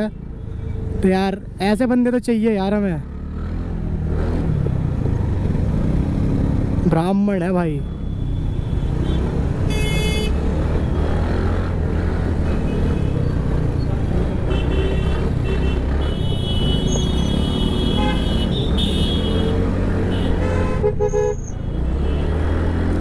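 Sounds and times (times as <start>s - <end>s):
road traffic rumble: 0.0s - 23.0s
vehicle horns honking: 8.5s - 10.4s, 14.4s - 22.3s.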